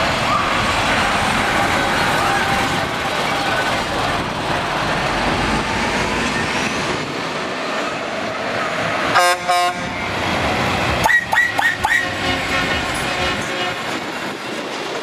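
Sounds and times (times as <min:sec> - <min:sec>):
diesel truck engine: 0:00.0 - 0:13.6
truck horn blast: 0:09.1 - 0:09.9, 0:11.0 - 0:13.9
high-pitched horn toots: 0:11.0 - 0:14.0.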